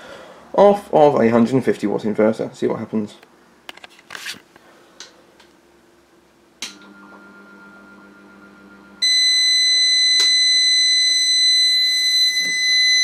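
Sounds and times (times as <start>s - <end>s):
low electrical hum: 0.0s - 13.0s
high-pitched alarm tone: 9.0s - 13.0s.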